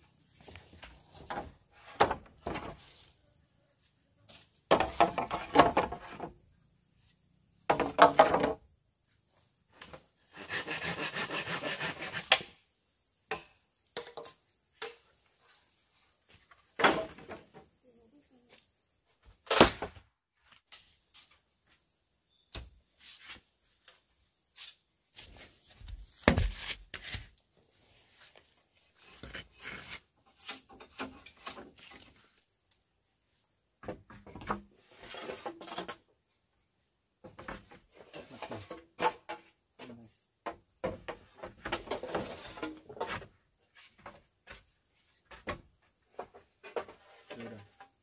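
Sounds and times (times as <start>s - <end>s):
faint high insect drone: 0.0s - 19.6s, 20.7s - 26.2s, 27.2s - 48.0s
knocks and clatters of hand work: 4.7s - 6.3s, 7.7s - 8.6s, 13.3s - 15.1s, 33.8s - 36.0s, 37.2s - 48.0s.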